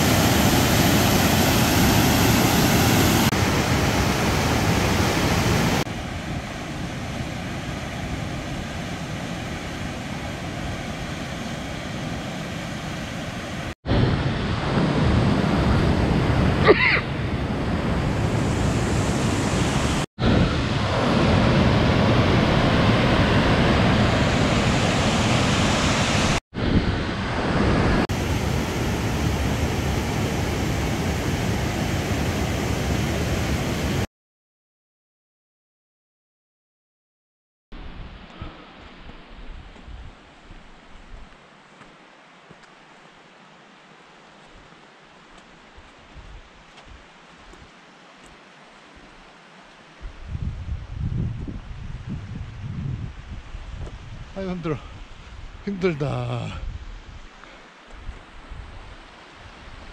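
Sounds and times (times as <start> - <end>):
waterfall rushing: 0.0 - 26.4, 27.1 - 34.1.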